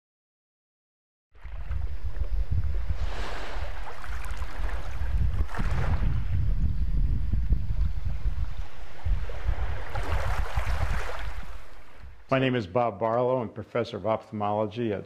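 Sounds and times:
small waves washing in: 1.4 - 6.4, 7.8 - 12.2
wind buffeting microphone: 1.4 - 12.3.

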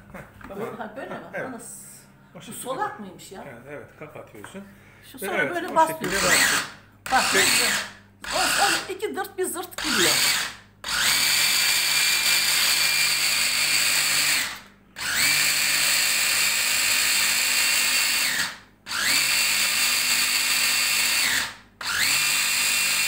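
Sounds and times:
hand blender motor whining: 5.9 - 8.9, 9.8 - 23.0.

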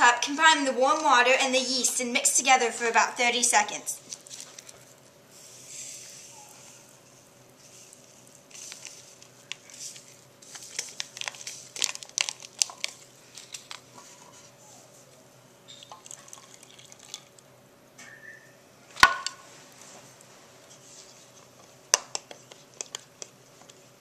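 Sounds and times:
paper packet crinkling: 4.0 - 5.1, 7.5 - 14.4
water pouring into cup: 15.7 - 17.4.

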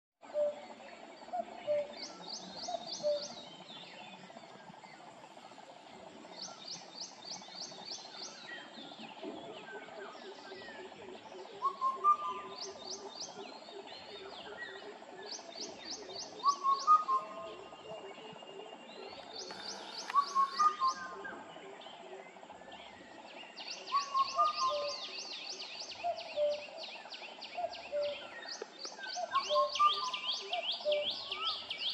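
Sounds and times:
background birdsong: 0.2 - 31.9
cuckoo whistled call: 0.3 - 0.7, 1.3 - 3.5, 11.5 - 17.7, 19.0 - 21.4, 23.8 - 26.9, 27.6 - 31.9.

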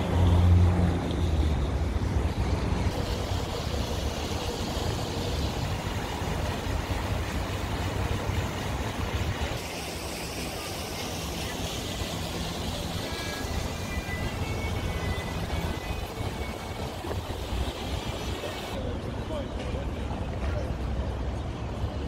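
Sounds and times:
fountain water rushing: 0.0 - 18.8
passing car traffic: 0.0 - 18.9.

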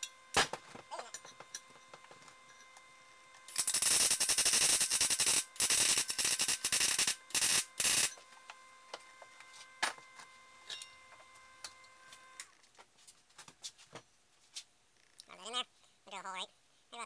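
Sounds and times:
welding arc crackling on steel: 3.5 - 8.2.

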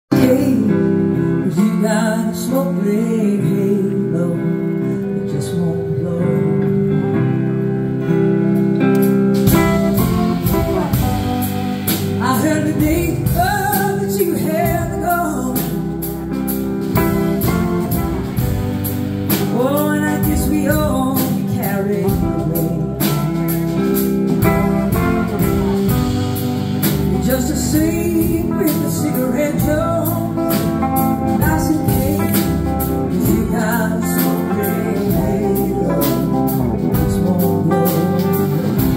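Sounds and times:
bass guitar: 0.0 - 38.9
drums: 0.0 - 38.9
woman singing: 0.1 - 7.0, 12.1 - 16.2, 19.3 - 26.0, 27.1 - 38.9
electric guitars: 0.1 - 38.9.

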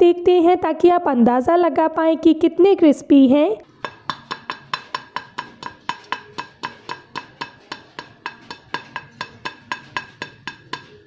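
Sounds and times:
pastry tapping against a plate: 3.7 - 11.0.

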